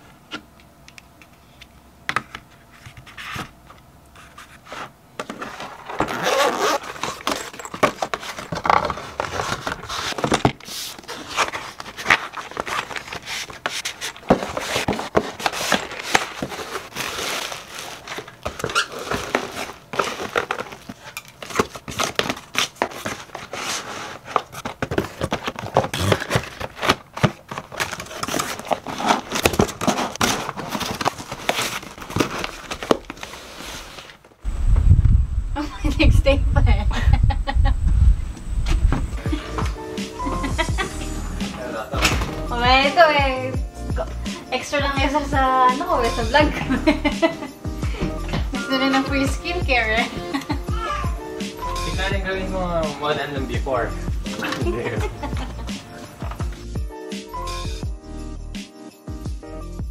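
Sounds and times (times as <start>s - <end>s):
packaging crinkling and scraping: 2.4s - 34.4s, 52.8s - 56.8s
paper sleeve sliding: 22.1s - 24.8s, 28.1s - 34.3s.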